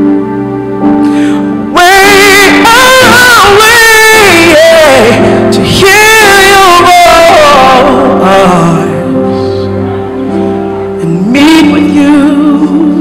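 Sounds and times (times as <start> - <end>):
woman singing gospel: 1.8 - 8.8.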